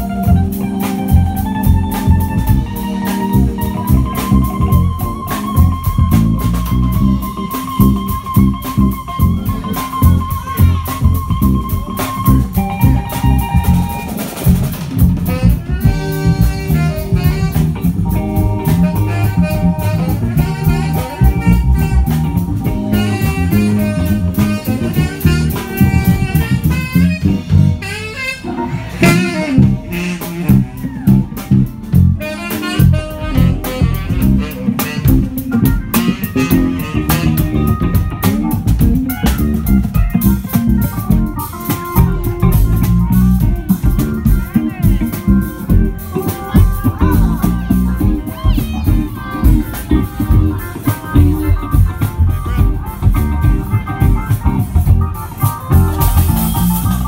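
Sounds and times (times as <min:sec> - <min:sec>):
drum beat: 0:00.0 - 0:27.9, 0:29.0 - 0:57.0
saxophone holding long notes: 0:00.0 - 0:38.8
electric bass guitar: 0:00.0 - 0:57.0
electric guitar: 0:00.0 - 0:57.0.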